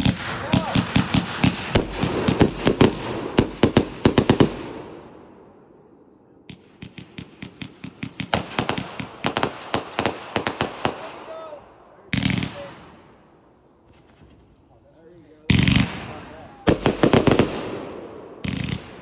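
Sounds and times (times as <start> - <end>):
firework cake shots and pops: 0.0 - 4.6, 12.1 - 12.9, 15.5 - 19.0.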